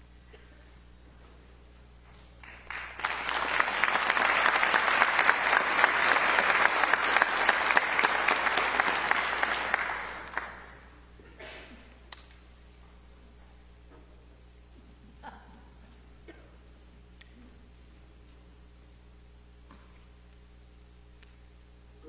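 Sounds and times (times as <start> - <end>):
audience clapping: 2.4 - 10.9.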